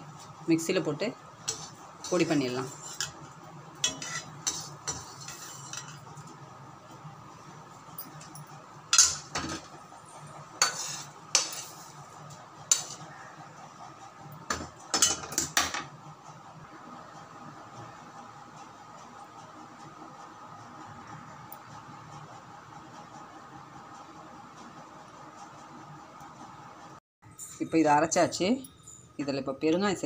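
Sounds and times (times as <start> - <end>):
metal spatula scraping metal pan: 1.4 - 3.2, 3.8 - 6.1, 10.6 - 12.0, 12.7 - 13.0.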